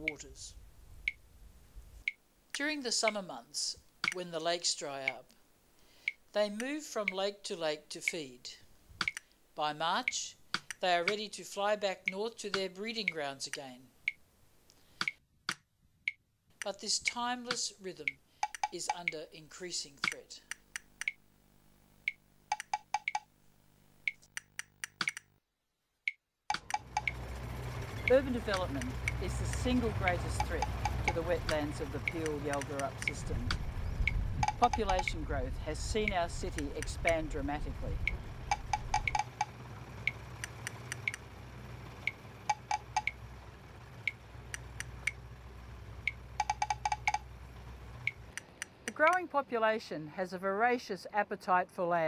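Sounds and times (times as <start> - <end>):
faint steady hum: 0.0 - 15.0, 16.5 - 25.4, 26.6 - 51.3
low steady drone: 26.7 - 48.3.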